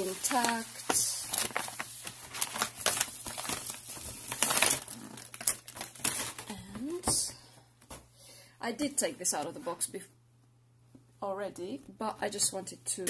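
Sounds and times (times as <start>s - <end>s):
padded envelope crinkling: 0.0s - 6.6s.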